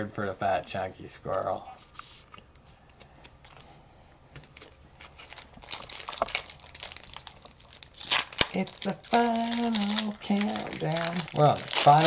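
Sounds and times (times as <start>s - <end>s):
foil wrapper crinkling: 5.0s - 12.0s.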